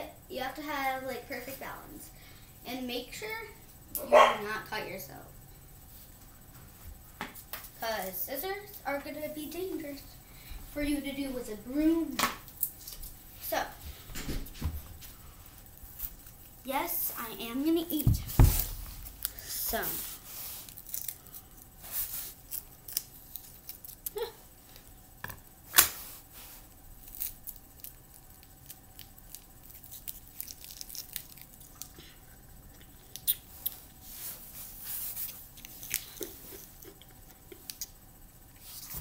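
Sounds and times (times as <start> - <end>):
thin plastic crinkling: 18.6 - 24.9, 27.0 - 32.0.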